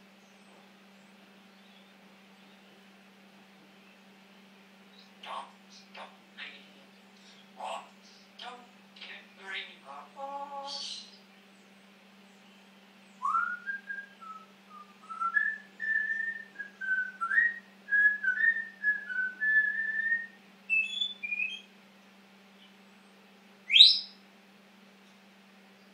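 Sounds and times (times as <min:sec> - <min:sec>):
parrot whistling: 0:13.2 - 0:21.7.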